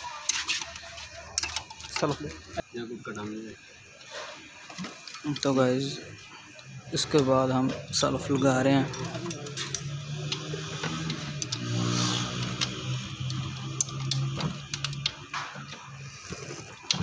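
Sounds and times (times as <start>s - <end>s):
hand tools clinking on metal: 8.3s - 10.5s.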